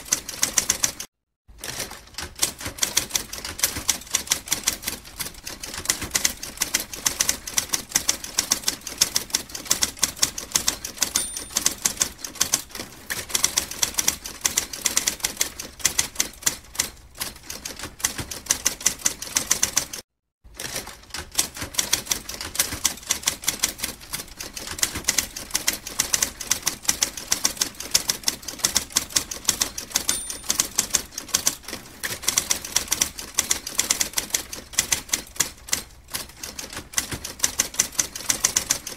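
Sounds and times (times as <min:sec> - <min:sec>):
typewriter keys clacking: 0:00.0 - 0:20.0, 0:20.6 - 0:38.9.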